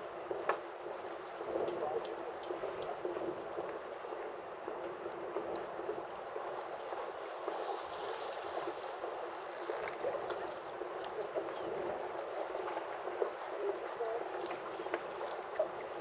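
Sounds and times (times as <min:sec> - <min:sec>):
lapping water: 0:08.5 - 0:16.0.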